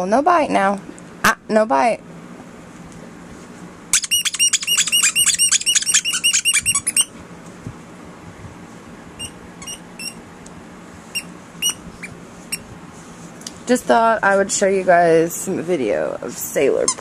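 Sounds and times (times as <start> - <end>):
squeaky dog toy squeaking: 3.9 - 7.1, 9.2 - 10.2, 11.2 - 12.1.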